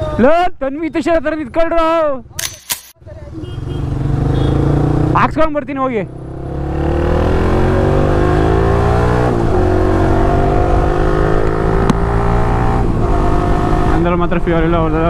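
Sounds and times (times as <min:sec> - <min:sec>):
motorcycle engine accelerating: 0:03.6 - 0:05.4, 0:06.0 - 0:15.0.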